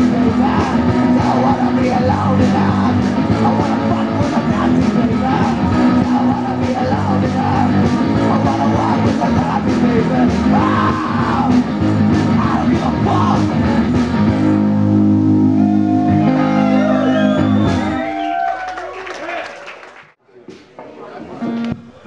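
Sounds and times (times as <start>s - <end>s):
person singing: 0.0s - 14.0s
drum beat: 0.0s - 14.4s
electric guitars: 0.0s - 18.5s.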